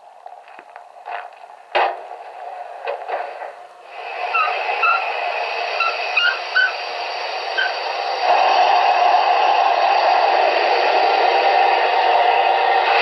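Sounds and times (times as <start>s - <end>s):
steam locomotive hiss: 3.3s - 13.0s.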